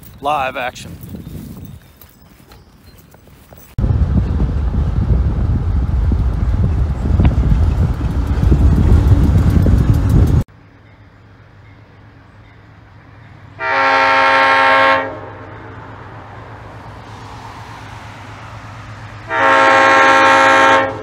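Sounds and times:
car road and wind noise: 0.8 - 10.5, 15.2 - 21.0
locomotive horn blast: 13.6 - 15.6, 19.2 - 21.0.

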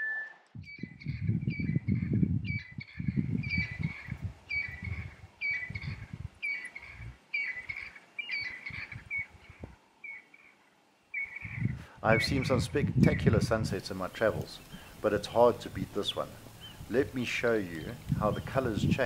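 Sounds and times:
bird whistled call: 0.0 - 9.3.

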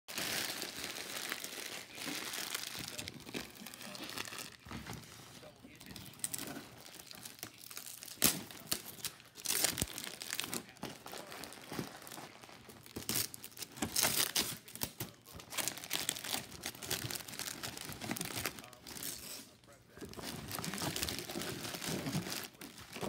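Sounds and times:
cellophane wrapping crinkling: 0.1 - 23.0.

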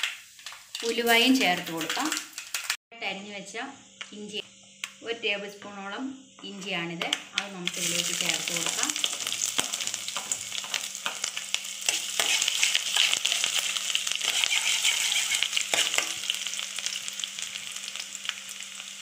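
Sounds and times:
ginger frying in oil: 0.0 - 19.0.

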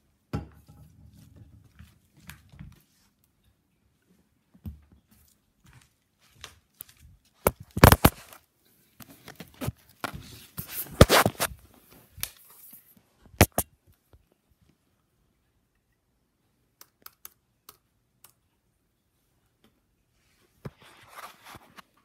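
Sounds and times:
rubbing and rustling on microphone: 6.3 - 8.4, 9.1 - 13.6, 20.2 - 22.0.

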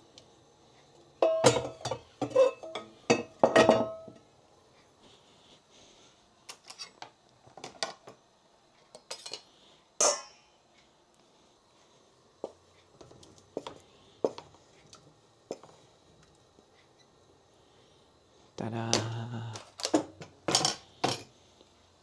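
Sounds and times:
cookware clattering: 1.2 - 4.2, 9.0 - 10.4.

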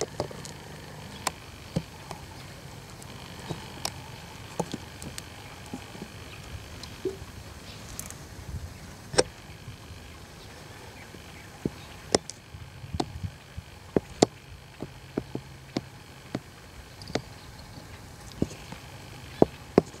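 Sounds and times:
sharp clicks and knocks: 0.0 - 7.2, 9.1 - 9.4, 11.6 - 13.3, 13.9 - 20.0.

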